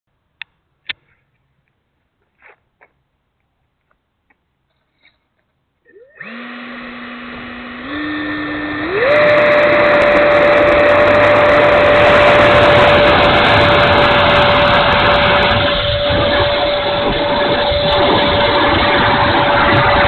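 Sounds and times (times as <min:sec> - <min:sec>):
electric ducted fan whine: 0:05.9 - 0:20.0
wheels crackling on asphalt: 0:07.3 - 0:20.0.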